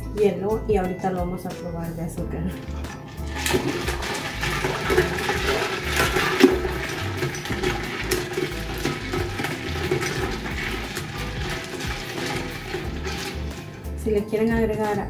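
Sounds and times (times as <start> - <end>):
liquid sloshing: 2.5 - 14.0
ice cubes clinking on glass: 2.6 - 13.8.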